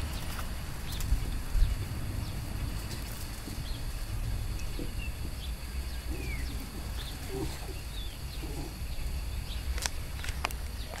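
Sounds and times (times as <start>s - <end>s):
wind rumbling on microphone: 0.0s - 11.0s
soft low grunts: 4.4s - 9.0s.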